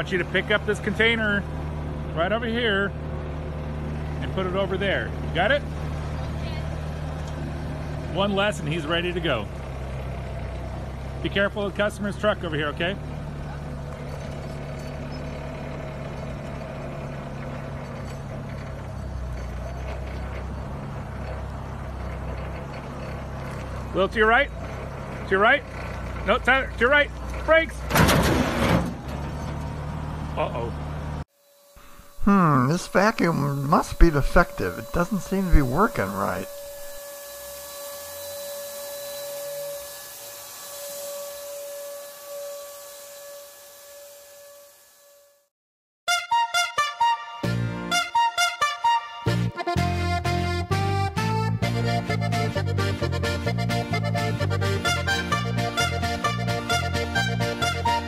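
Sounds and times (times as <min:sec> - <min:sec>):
forklift engine running: 0:00.0 - 0:44.2, 0:47.4 - 0:58.0
vacuum cleaner running: 0:31.3 - 0:45.2.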